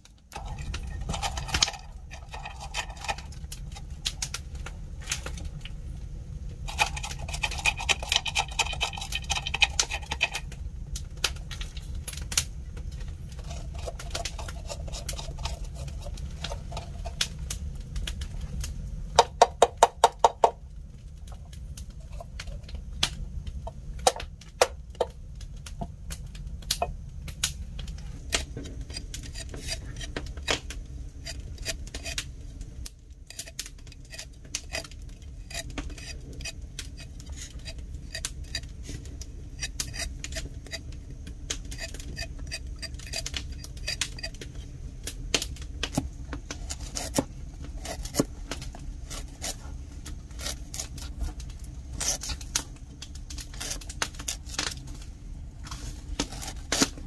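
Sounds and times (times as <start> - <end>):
knife scraping papaya seeds: 0.4 - 4.4, 6.6 - 10.5, 13.4 - 17.5, 21.8 - 22.8, 28.2 - 32.3, 33.2 - 41.0, 41.6 - 44.7, 45.9 - 52.7, 53.3 - 54.8, 55.7 - 57.0.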